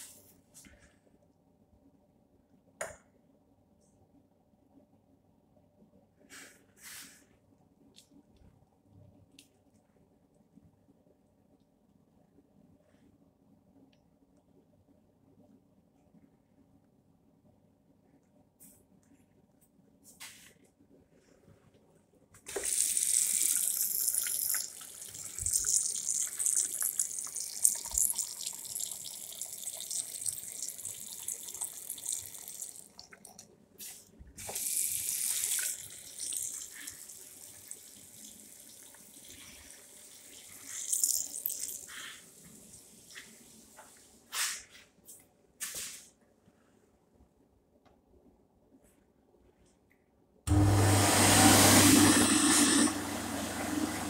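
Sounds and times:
tap water running into basin: 0:22.5 - 0:33.4, 0:34.4 - 0:42.0.

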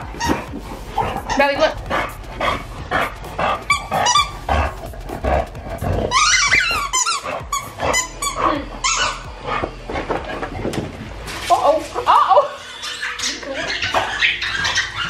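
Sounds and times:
dog growling: 0:00.0 - 0:10.8
toy squeaking: 0:03.7 - 0:04.5, 0:06.1 - 0:09.3, 0:12.3 - 0:15.0.

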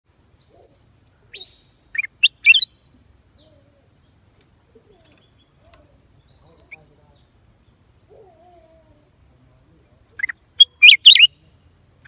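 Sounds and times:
bird singing whistled notes: 0:00.2 - 0:03.5, 0:10.2 - 0:11.5.

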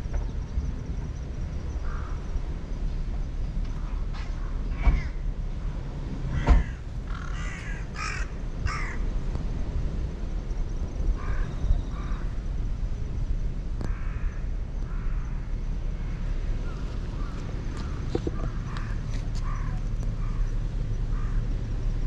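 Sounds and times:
steady low rumble: 0:00.0 - 0:22.0
crow cawing: 0:01.8 - 0:02.2, 0:04.7 - 0:05.2, 0:06.4 - 0:09.0, 0:11.2 - 0:12.3, 0:13.9 - 0:15.4, 0:16.0 - 0:20.5, 0:21.1 - 0:21.4.

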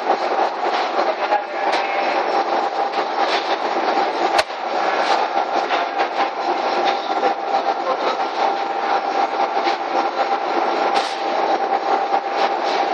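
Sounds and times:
belt and rollers rattling: 0:00.0 - 0:12.9
conveyor motor whine: 0:00.0 - 0:12.9.

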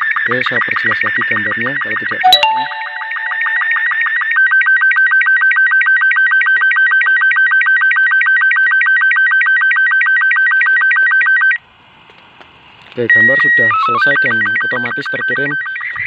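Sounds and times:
short sync beeps: 0:02.2 - 0:03.8.

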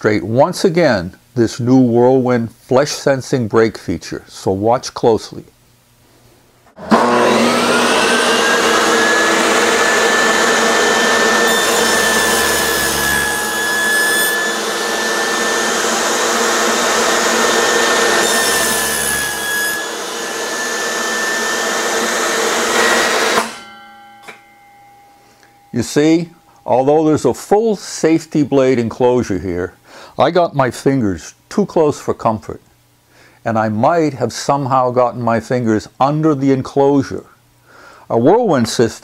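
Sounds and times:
saw cutting wooden blocks: 0:06.8 - 0:23.7
table saw running: 0:06.8 - 0:24.5.

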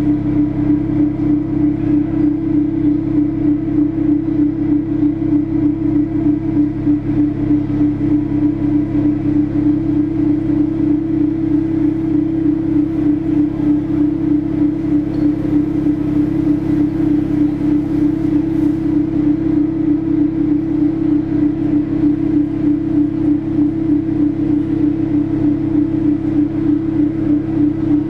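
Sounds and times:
throbbing electronic low hum: 0:00.0 - 0:28.0.

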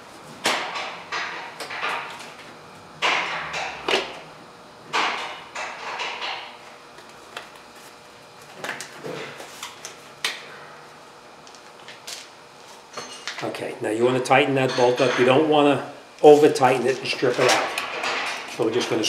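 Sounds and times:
clinking tools and metal parts: 0:12.9 - 0:13.4, 0:14.6 - 0:15.4.

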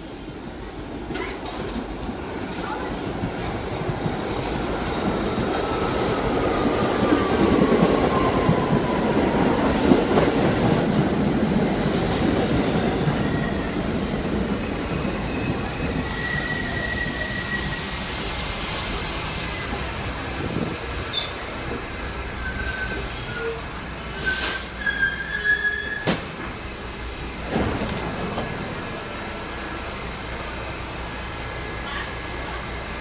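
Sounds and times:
subway wheels rumbling on rail: 0:00.0 - 0:33.0
high brake squeal: 0:10.6 - 0:12.2, 0:14.6 - 0:26.2.

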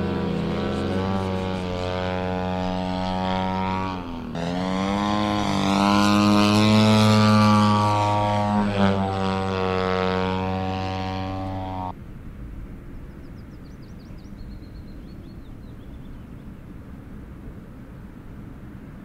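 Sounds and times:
model airplane engine droning: 0:00.0 - 0:12.0
wind rumble on microphone: 0:00.0 - 0:19.0.

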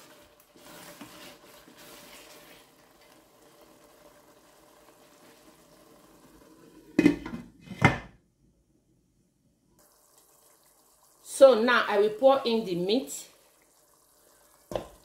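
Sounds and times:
faint sizzle: 0:00.0 - 0:07.4, 0:09.8 - 0:15.0
spoon stirring in a pot: 0:00.5 - 0:02.6.

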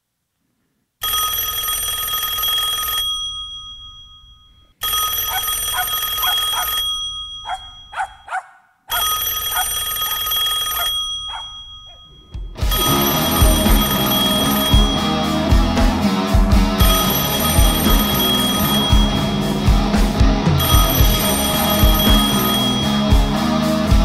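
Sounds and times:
telephone bell ringing: 0:01.0 - 0:15.4, 0:16.8 - 0:19.5, 0:20.6 - 0:23.4
dog barking: 0:05.3 - 0:06.8, 0:07.4 - 0:09.7, 0:10.8 - 0:12.1
music: 0:12.4 - 0:24.0.

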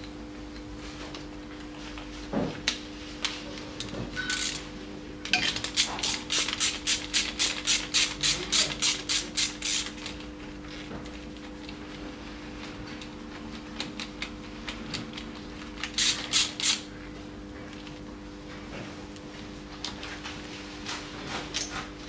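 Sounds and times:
ratchet wrench clicking: 0:15.9 - 0:16.8.

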